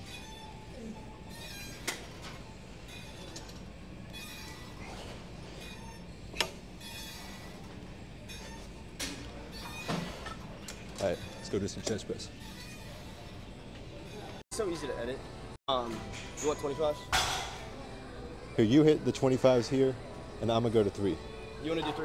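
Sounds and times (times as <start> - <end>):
faint music: 0.0 - 22.0.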